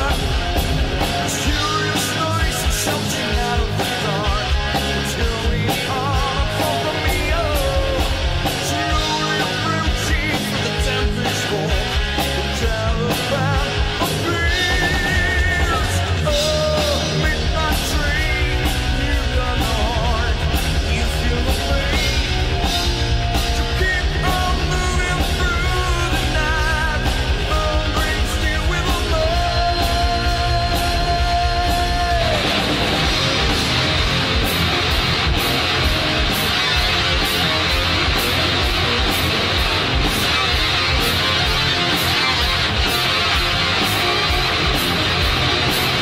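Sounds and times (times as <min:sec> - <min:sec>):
heavy metal band playing: 0:00.0 - 0:46.0
wavering lead guitar line: 0:00.0 - 0:46.0.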